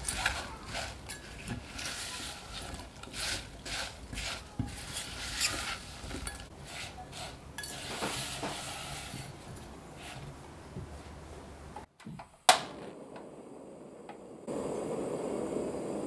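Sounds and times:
spatula stirring fruit in bowl: 0.0s - 11.0s.

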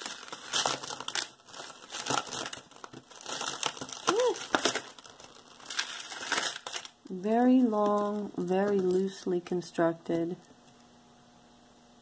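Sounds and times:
plastic crinkling: 0.0s - 9.2s.

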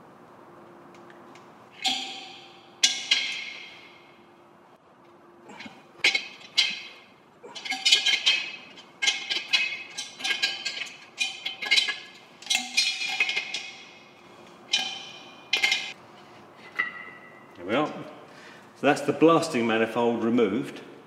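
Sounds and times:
hollow metal tank ringing: 1.7s - 4.5s.

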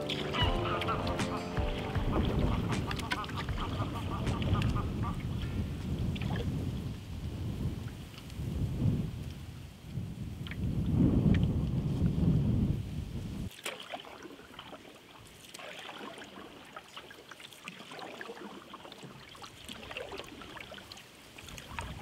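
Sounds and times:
paddle splashes and drips: 0.0s - 8.6s, 9.2s - 12.1s, 13.5s - 22.0s
water lapping around canoe: 0.0s - 12.2s, 13.3s - 22.0s.

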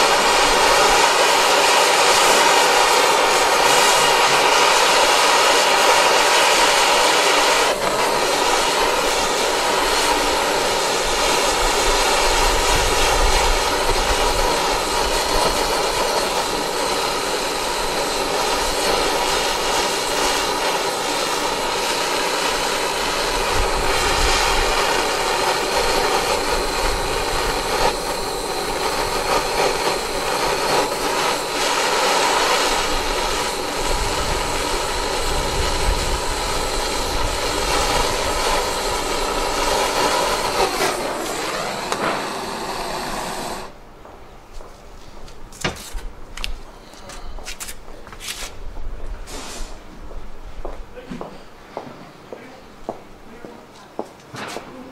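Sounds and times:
gas torch hissing: 0.0s - 53.4s.

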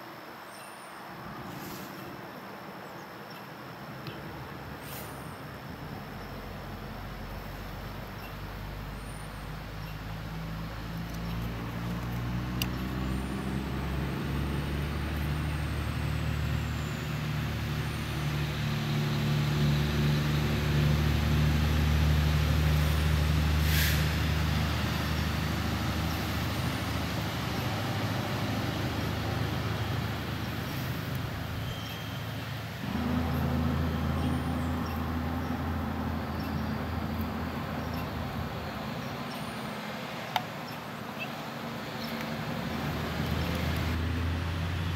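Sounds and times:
short hiss: 1.5s - 2.1s, 4.8s - 5.4s, 23.6s - 24.2s
large vehicle engine humming: 4.0s - 44.9s.

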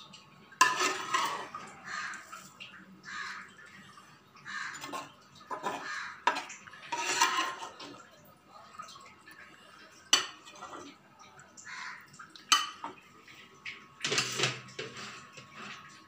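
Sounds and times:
crows cawing: 1.8s - 2.4s, 3.0s - 3.6s, 4.4s - 6.3s, 11.6s - 12.1s.

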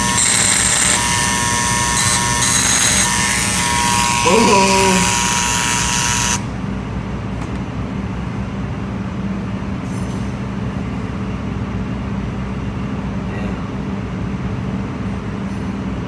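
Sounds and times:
rotary tool whining: 0.0s - 6.4s.

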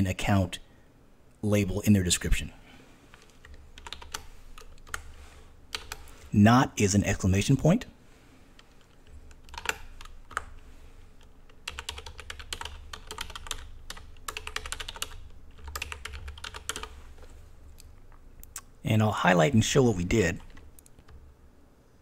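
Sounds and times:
typing on keyboard: 3.1s - 5.1s, 5.7s - 6.1s, 8.6s - 10.6s, 11.2s - 17.0s.

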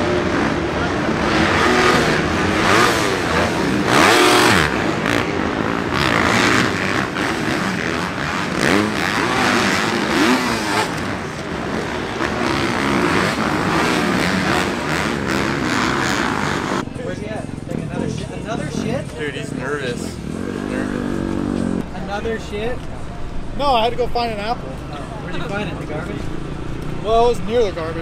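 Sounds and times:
dirt bike engines revving: 0.0s - 28.0s.

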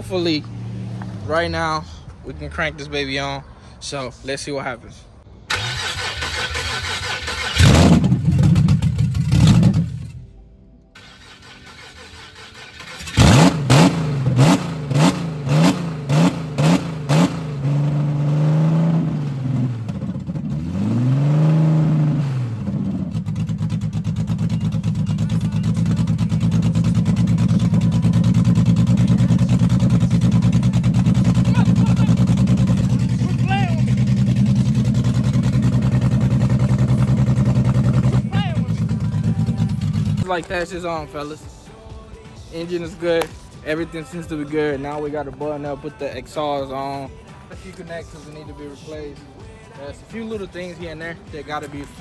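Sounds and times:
engine revving and idling: 5.5s - 10.2s, 11.0s - 40.3s
engine starter cranking: 5.5s - 10.2s, 11.0s - 14.0s.

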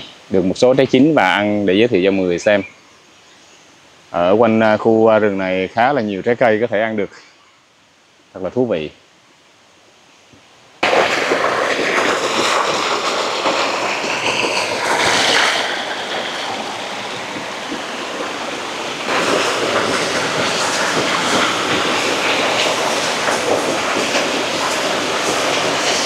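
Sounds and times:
stream water rushing over stones: 10.8s - 26.0s.

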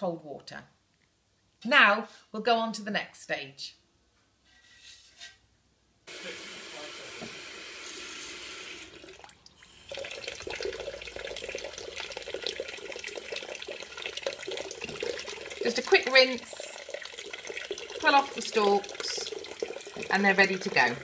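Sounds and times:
tap running into water: 7.1s - 21.0s.

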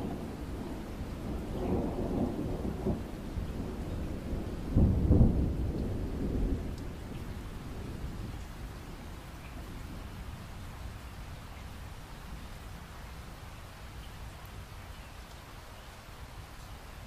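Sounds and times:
rolling thunder: 0.0s - 11.0s
steady rain: 0.0s - 17.0s.

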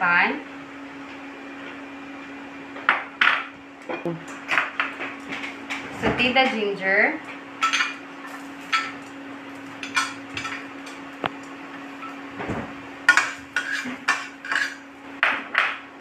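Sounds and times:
steady low hum: 0.0s - 16.0s
metal spatula scraping pan: 13.1s - 14.8s.

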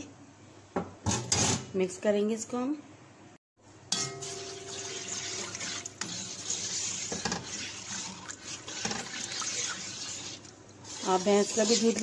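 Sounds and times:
liquid sloshing in a pot: 4.0s - 12.0s.

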